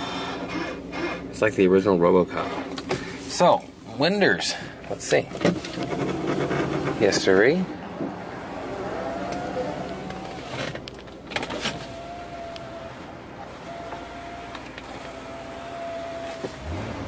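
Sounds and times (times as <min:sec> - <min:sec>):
car engine idling hum: 0:00.0 - 0:17.0
power window motor whine: 0:08.1 - 0:17.0
clicks: 0:12.4 - 0:12.8.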